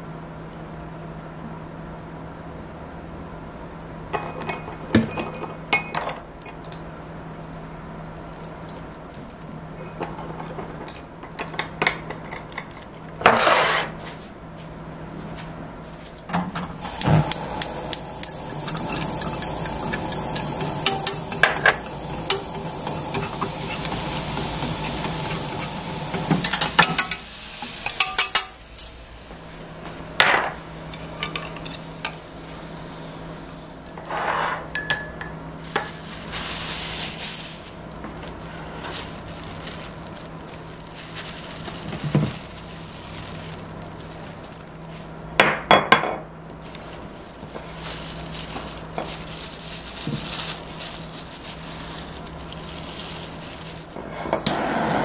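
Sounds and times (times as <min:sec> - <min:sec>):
food sizzling in hot oil: 0:16.8 - 0:29.6, 0:35.6 - 0:45.1
metal spoon clinking ceramic bowl: 0:34.8 - 0:36.0.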